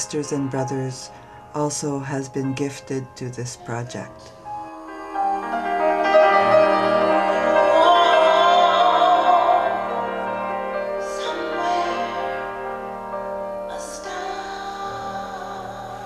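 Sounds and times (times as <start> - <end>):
sustained chords: 0.0 - 16.0
voice singing held notes: 3.0 - 10.1.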